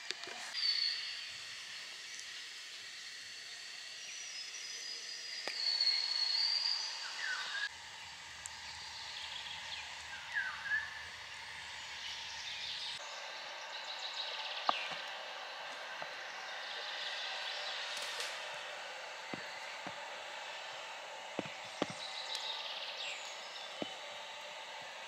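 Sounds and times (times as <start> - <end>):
bird chirping: 8.4 - 24.6.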